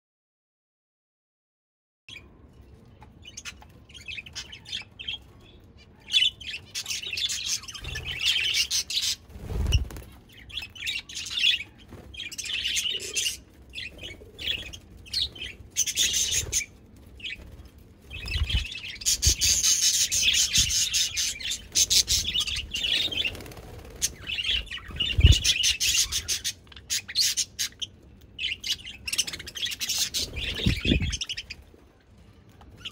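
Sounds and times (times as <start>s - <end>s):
budgerigars chattering and chirping: 6.0s - 17.4s, 18.1s - 31.6s.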